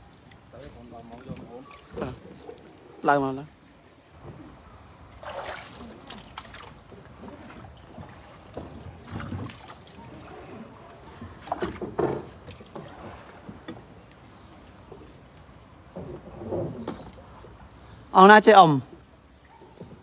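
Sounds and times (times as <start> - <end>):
water splashing from paddle strokes: 4.2 - 14.7
knocks on wooden hull: 11.3 - 12.9.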